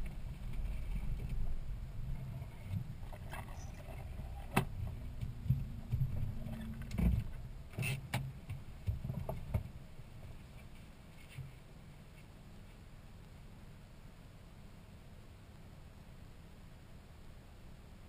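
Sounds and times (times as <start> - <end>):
sharp knocks and rattles: 0.0 - 11.6
low vehicle rumble: 0.0 - 18.0.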